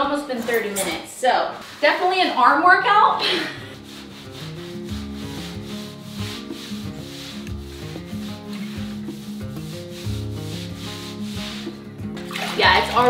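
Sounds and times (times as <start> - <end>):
sponge scrubbing tile: 3.4 - 13.0.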